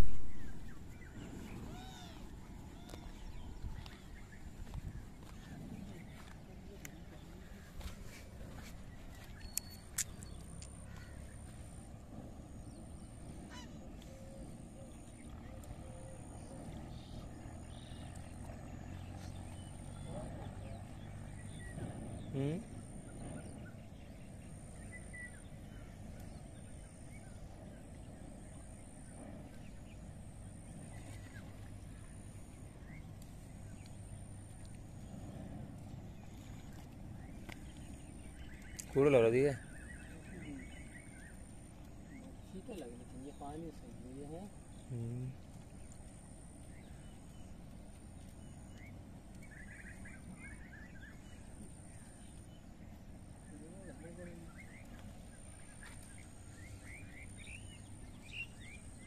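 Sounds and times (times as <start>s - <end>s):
faint bird chirps: 0.0s - 59.0s
steady low river rush: 0.0s - 59.0s
wind rumble on microphone: 0.0s - 59.0s
small bird chirps: 8.6s - 11.5s.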